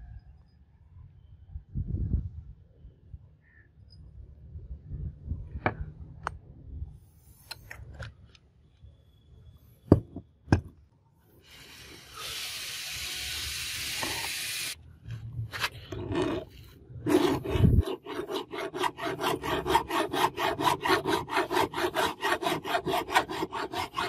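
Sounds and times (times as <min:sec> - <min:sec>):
steady hiss: 0:11.4 - 0:14.8.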